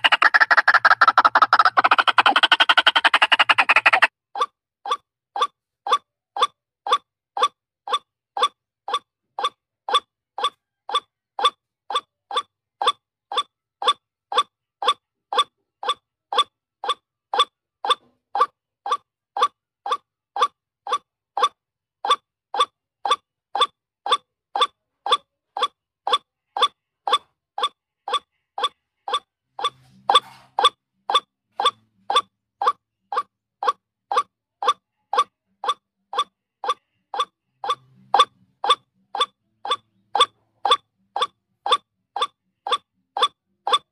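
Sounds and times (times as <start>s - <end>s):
waterhen calling: 0.0s - 4.1s.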